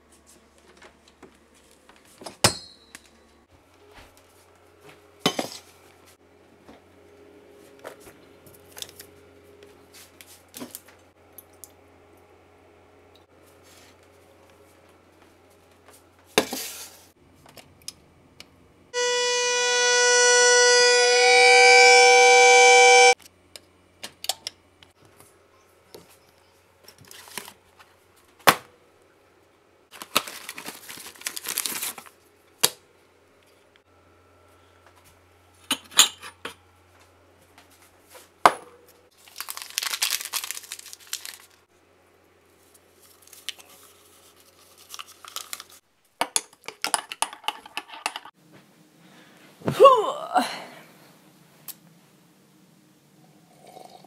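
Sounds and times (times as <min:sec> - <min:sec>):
kettle whistling: 0:19.0 - 0:23.2
paper packet crinkling and tearing: 0:29.9 - 0:32.2, 0:39.2 - 0:41.6, 0:43.0 - 0:45.8.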